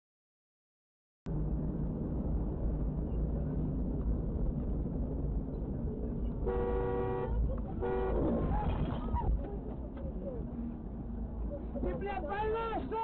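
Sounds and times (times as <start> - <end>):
vehicle rumble from cab: 1.3 - 13.0
vehicle horn blasts: 6.5 - 8.5.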